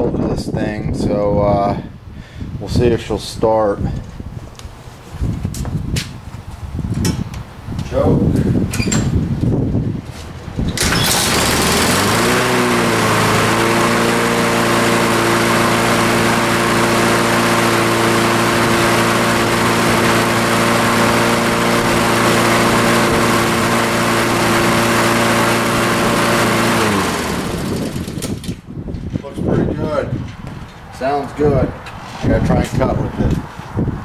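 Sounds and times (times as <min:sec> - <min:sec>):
lawn mower engine starting and running: 0:10.2 - 0:28.7.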